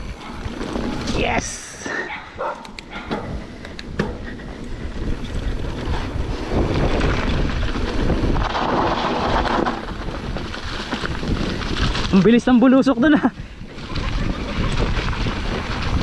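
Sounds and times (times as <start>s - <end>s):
bike clicks and rattles: 0.0s - 16.0s
wind rushing over microphone: 0.0s - 16.0s.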